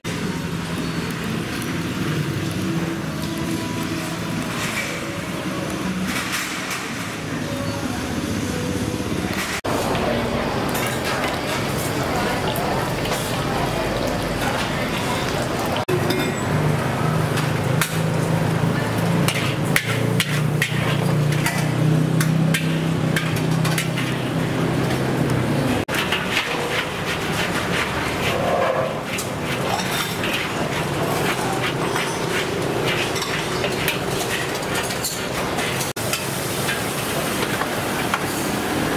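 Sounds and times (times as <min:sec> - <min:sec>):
kitchen background din: 0:02.5 - 0:38.5.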